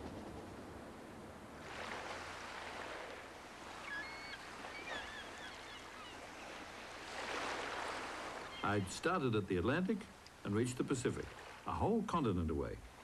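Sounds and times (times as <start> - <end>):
high bird calls: 3.8 - 7.0, 8.4 - 9.1.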